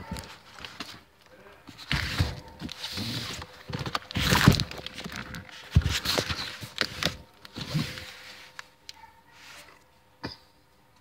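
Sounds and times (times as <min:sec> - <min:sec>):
cardboard box and plastic rustling: 0:00.0 - 0:08.7.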